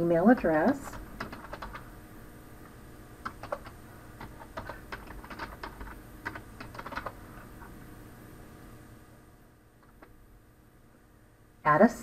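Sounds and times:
typing on computer keyboard: 0.4 - 1.8, 3.2 - 7.2.

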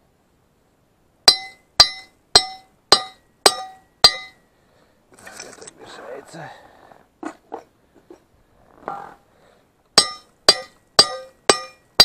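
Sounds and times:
hammer striking steel: 1.3 - 4.4, 10.0 - 12.0.

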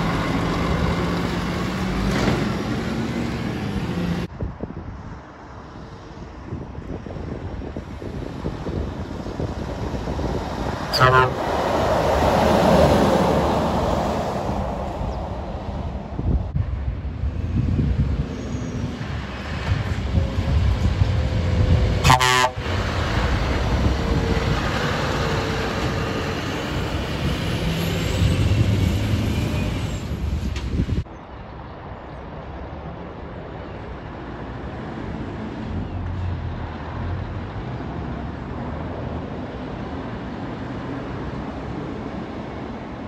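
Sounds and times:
lorries driving past: 0.0 - 43.0
truck horn toot: 10.9 - 11.6, 22.0 - 22.8.

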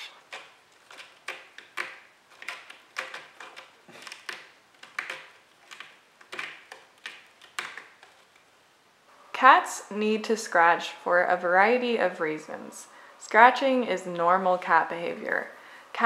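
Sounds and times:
cat claws scratching rope: 0.1 - 8.5.

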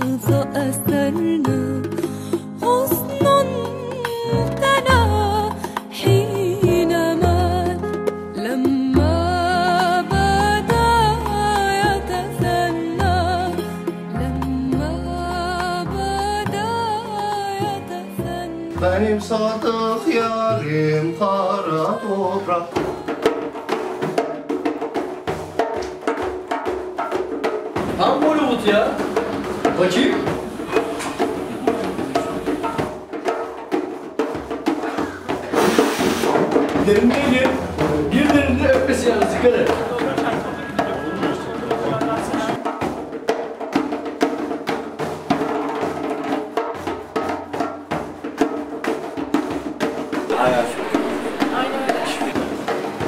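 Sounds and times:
person singing: 0.0 - 7.8, 8.4 - 23.4, 50.3 - 52.4
frame drum strokes: 21.8 - 53.0.

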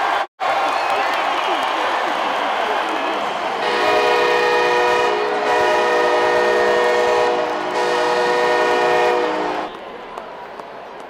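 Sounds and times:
crowd noise: 0.0 - 11.0
stadium horn blasts: 3.6 - 9.9.

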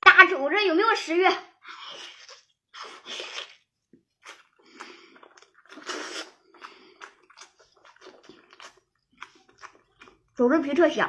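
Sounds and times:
child chewing meat: 1.7 - 11.0.

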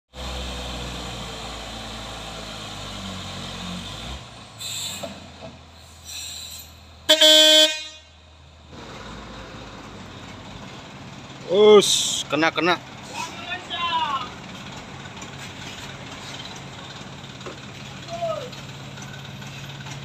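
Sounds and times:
truck diesel engine rumbling: 0.1 - 20.0
vehicle horn: 7.1 - 8.2.

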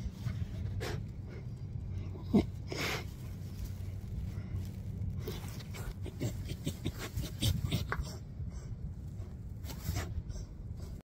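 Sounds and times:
low rumble: 0.0 - 11.0
puppy sniffing: 5.2 - 11.0.

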